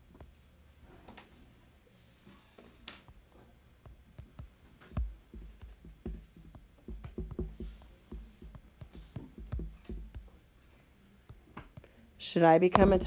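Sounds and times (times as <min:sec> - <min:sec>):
stylus tapping on tablet screen: 0:03.8 - 0:10.4.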